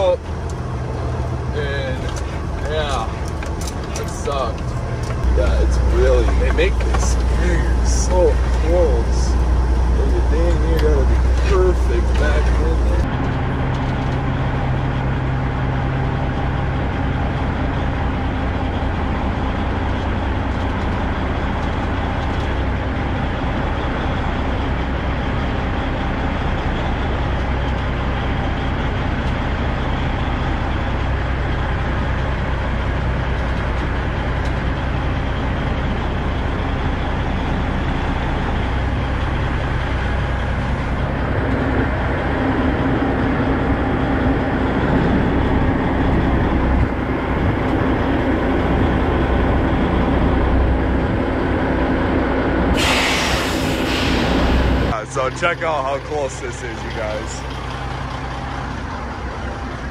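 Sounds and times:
diesel truck engine idling: 0.0s - 59.9s.

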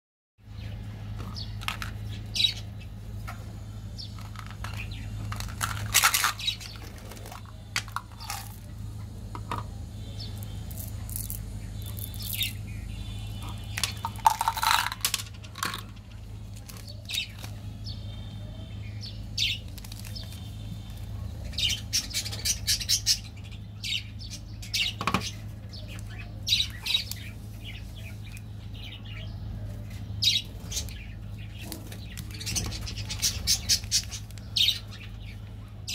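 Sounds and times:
steady low hum: 0.4s - 35.9s
candy wrappers crinkling: 4.1s - 8.7s, 13.7s - 17.6s, 19.5s - 21.1s.

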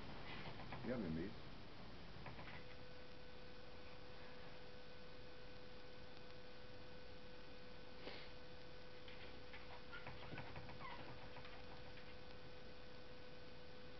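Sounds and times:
faint steady hum: 0.0s - 13.9s.

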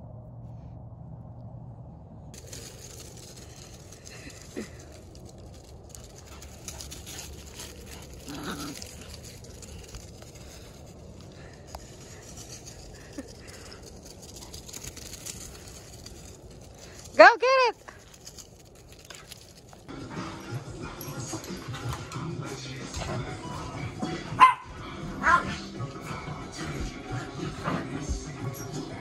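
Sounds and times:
paws rustling through dry leaves: 2.4s - 17.2s.

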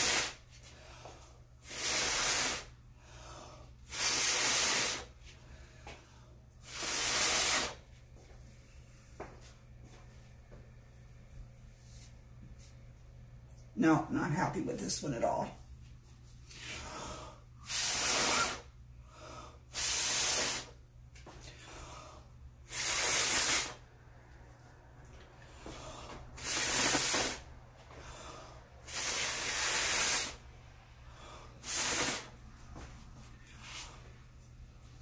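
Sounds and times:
person blowing forceful puffs: 0.0s - 0.6s, 1.6s - 2.8s, 3.8s - 5.4s, 6.6s - 7.9s, 17.6s - 18.8s, 19.6s - 20.8s, 22.6s - 23.9s, 25.5s - 30.5s, 31.5s - 32.5s.

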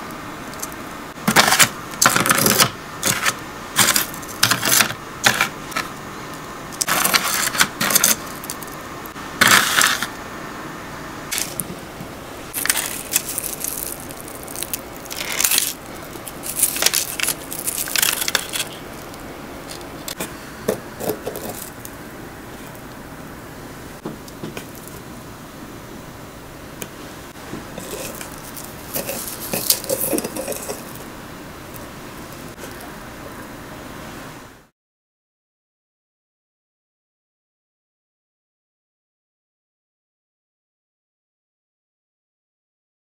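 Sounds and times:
churros crunching: 0.6s - 5.9s, 6.8s - 8.8s, 11.3s - 11.7s, 12.5s - 20.3s, 20.9s - 23.0s, 27.7s - 31.1s
metal tongs scraping steel tray: 27.8s - 31.0s.

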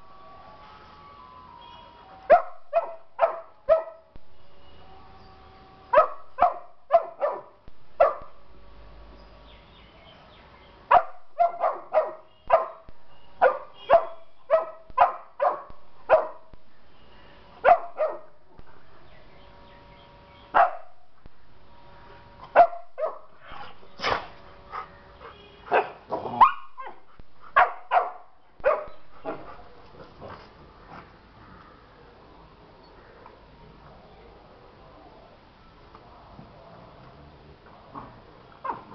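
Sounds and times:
dogs barking: 2.3s - 4.1s, 5.9s - 8.4s, 10.9s - 16.6s, 17.6s - 18.4s, 20.5s - 21.0s, 22.5s - 31.1s.

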